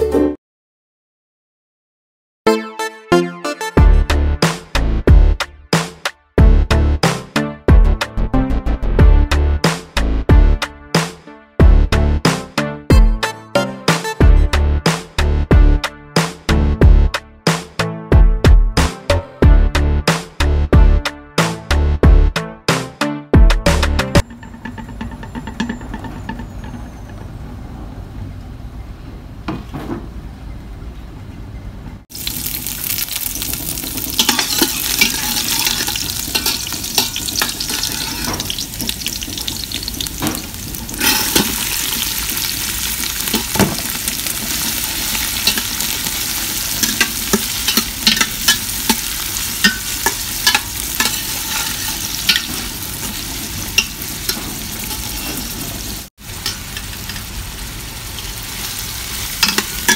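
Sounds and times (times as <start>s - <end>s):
metal spatula scraping a pot: 24.2s - 27.2s, 33.4s - 57.3s, 59.1s - 59.9s
garlic and onion sizzling in oil: 32.1s - 59.9s.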